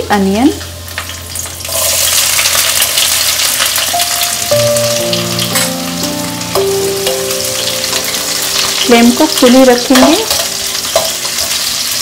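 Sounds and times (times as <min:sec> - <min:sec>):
food sizzling in hot oil: 0:00.0 - 0:12.0
background music with held notes: 0:03.4 - 0:12.0.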